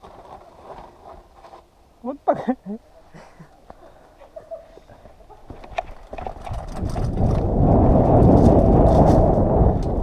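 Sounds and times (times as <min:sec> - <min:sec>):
bike clicks and rattles over roots: 0:00.0 - 0:01.7, 0:05.5 - 0:10.0
wind and tyre rumble: 0:04.9 - 0:10.0.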